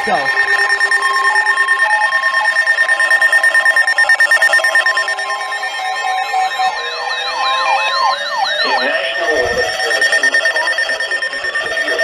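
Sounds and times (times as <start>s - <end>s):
wavering siren-like whoop: 0.4s - 12.0s
weather alert radio tones: 7.4s - 12.0s.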